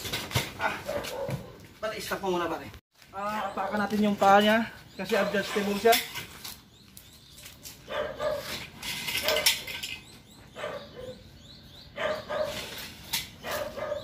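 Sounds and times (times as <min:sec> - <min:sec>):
dog barking: 0:00.6 - 0:01.6, 0:07.8 - 0:08.6, 0:10.5 - 0:11.3, 0:12.0 - 0:12.7, 0:13.4 - 0:14.0.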